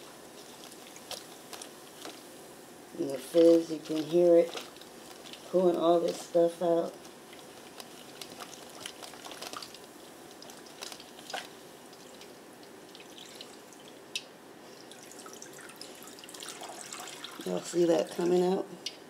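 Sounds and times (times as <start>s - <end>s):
liquid fizzing with small pops: 3.1s - 6.2s, 7.0s - 18.3s.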